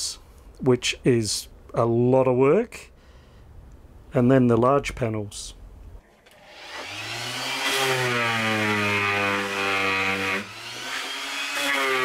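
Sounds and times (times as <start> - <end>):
orbital sander on wood: 6.3 - 12.0.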